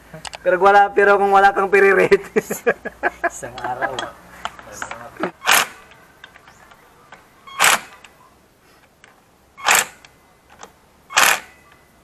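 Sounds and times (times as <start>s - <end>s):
cordless drill driving bolts: 5.4s - 6.6s, 7.5s - 8.1s, 9.6s - 11.6s.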